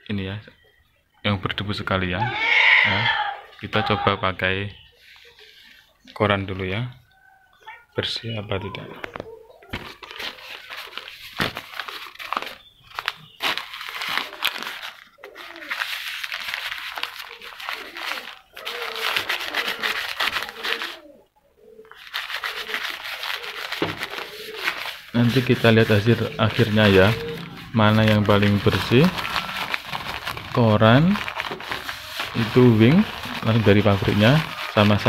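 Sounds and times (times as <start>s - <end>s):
newspaper rubbing on window glass: 10.2s - 21.0s, 22.0s - 35.0s.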